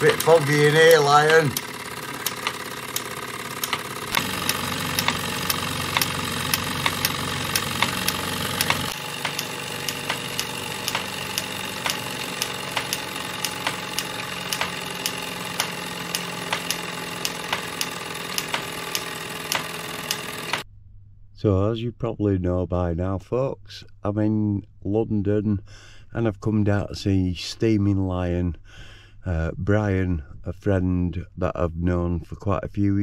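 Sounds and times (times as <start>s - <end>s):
sharp mechanical clicks: 0.0s - 20.6s
steam engine mechanical whir: 0.0s - 20.6s.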